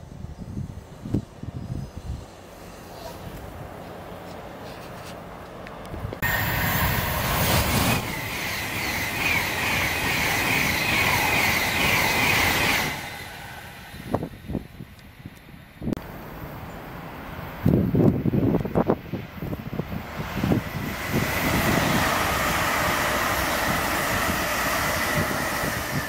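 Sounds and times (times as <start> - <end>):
electric train passing: 6.2 - 26.0.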